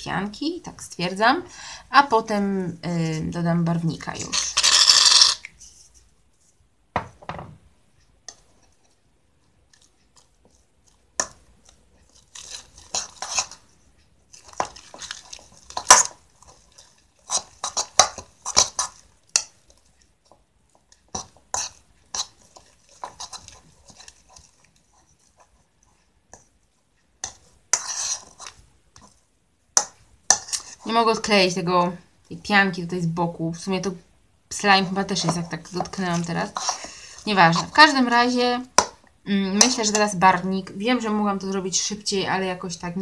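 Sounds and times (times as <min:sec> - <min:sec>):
metal utensil scraping bowl: 0:04.2 - 0:05.5, 0:12.1 - 0:13.7, 0:21.1 - 0:25.5, 0:27.2 - 0:29.1, 0:30.3 - 0:31.3, 0:34.8 - 0:38.2, 0:39.5 - 0:40.4.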